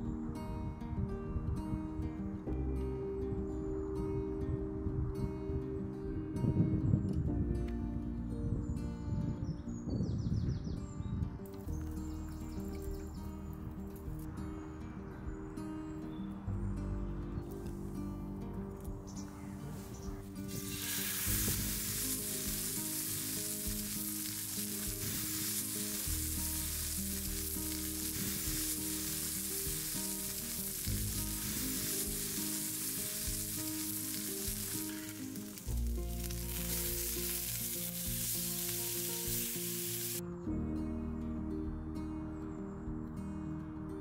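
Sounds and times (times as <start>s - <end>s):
food sizzling in a frying pan: 20.4s - 40.2s.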